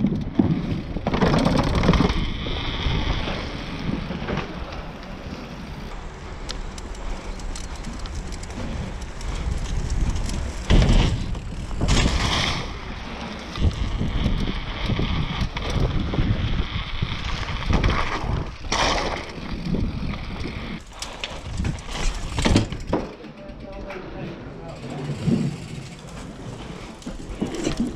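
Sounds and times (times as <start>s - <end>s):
wind buffeting microphone: 0.0s - 22.9s
bike jolting and rattling: 0.0s - 27.9s
bike tyre rumble: 0.0s - 27.9s.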